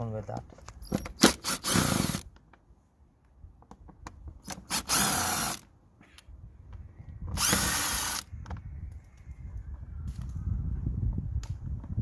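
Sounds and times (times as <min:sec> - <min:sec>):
cordless drill motor running: 0:04.7 - 0:05.6, 0:07.3 - 0:08.3.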